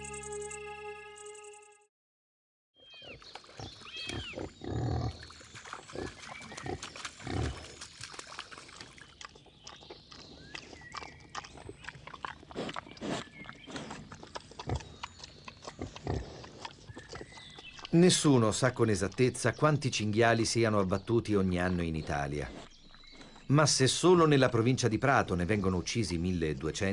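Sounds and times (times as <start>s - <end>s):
birds chirping: 2.8s - 26.9s
wild boar grunting: 3.2s - 7.7s, 9.7s - 19.6s.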